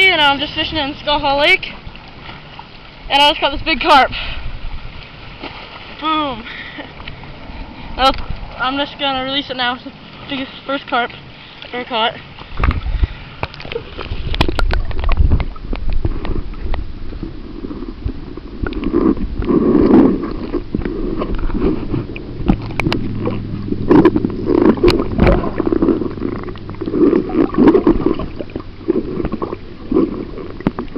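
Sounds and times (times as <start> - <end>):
low steady hum: 0.0 - 30.9
water gurgling underwater: 12.5 - 30.9.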